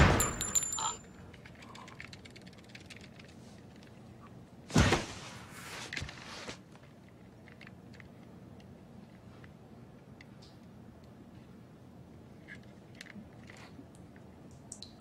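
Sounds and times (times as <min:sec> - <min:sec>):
gunshot echo: 0:00.0 - 0:00.7.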